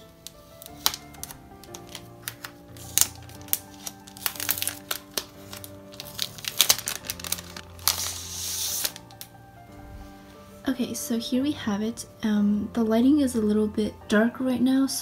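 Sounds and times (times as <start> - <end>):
plastic sleeve crinkling: 0.0 - 9.4
background music: 0.0 - 15.0.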